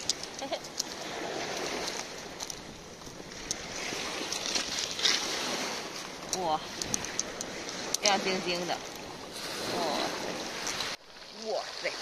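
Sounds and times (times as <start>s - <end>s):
pebbles knocking together: 0.0s - 0.9s
waves washing over pebbles: 0.0s - 12.0s.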